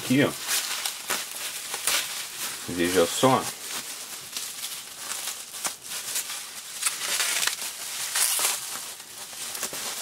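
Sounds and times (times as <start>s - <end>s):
bubble wrap crinkling: 0.0s - 10.0s.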